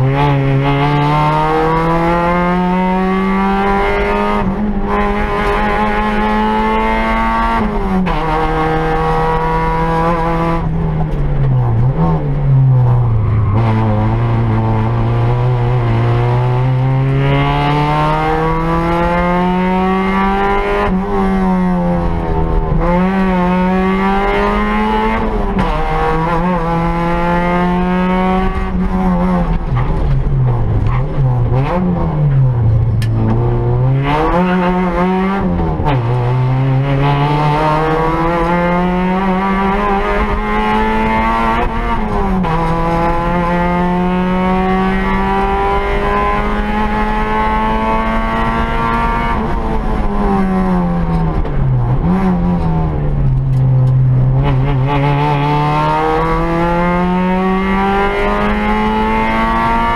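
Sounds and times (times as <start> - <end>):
rally car engine at full throttle: 0.0 - 59.9.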